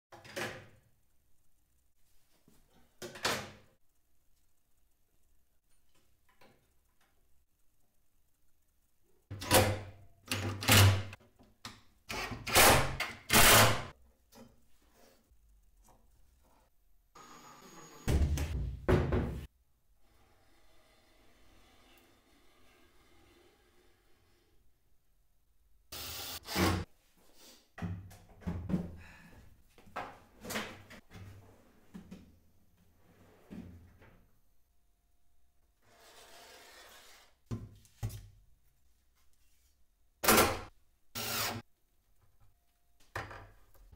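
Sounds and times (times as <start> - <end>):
cordless drill driving screws: 41.2 - 41.6.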